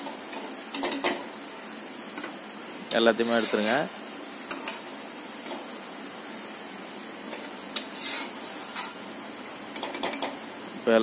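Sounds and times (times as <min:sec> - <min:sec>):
oil sizzling: 0:00.0 - 0:11.0
skimmer scraping metal pan: 0:03.1 - 0:03.9, 0:07.8 - 0:09.0.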